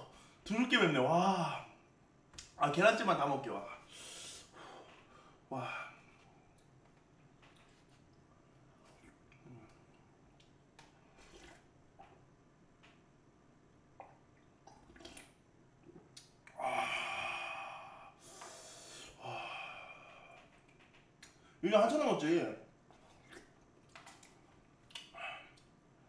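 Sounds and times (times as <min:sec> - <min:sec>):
man exhaling hard: 0:16.6 - 0:20.0.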